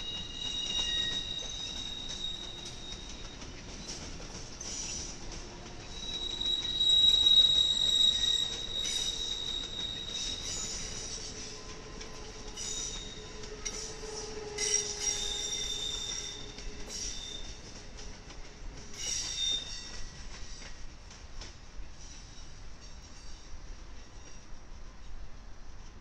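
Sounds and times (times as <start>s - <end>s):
train wheels squealing on rail: 0.0s - 25.3s.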